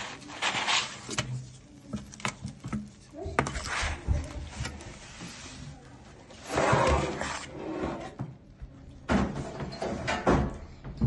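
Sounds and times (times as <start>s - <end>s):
pizza scraping off metal tray: 0.0s - 1.4s, 6.4s - 8.2s.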